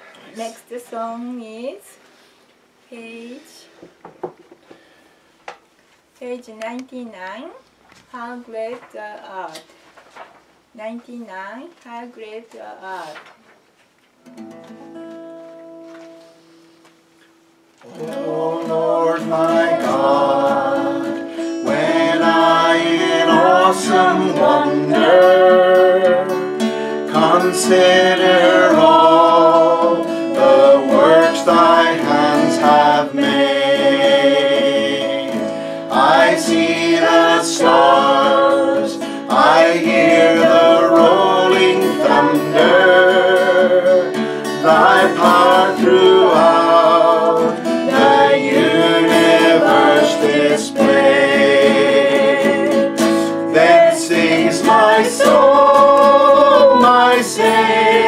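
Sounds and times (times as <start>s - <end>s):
guitar accompaniment: 14.2s - 58.0s
hymn singing: 17.8s - 58.0s.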